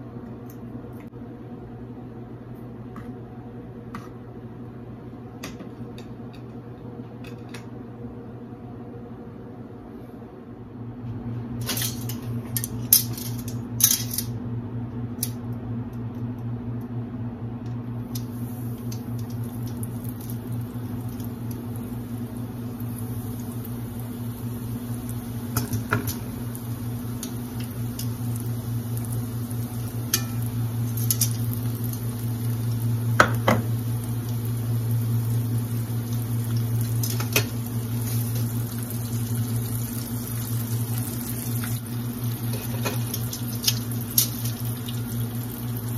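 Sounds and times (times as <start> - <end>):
onion rings sizzling in oil: 18.1 - 45.9.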